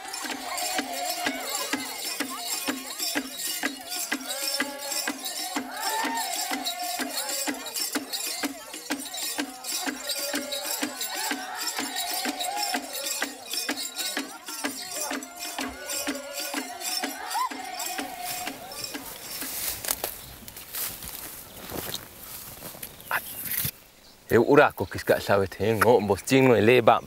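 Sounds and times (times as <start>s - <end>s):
steady drum beat: 0.0s - 20.1s
voices singing together: 0.0s - 20.1s.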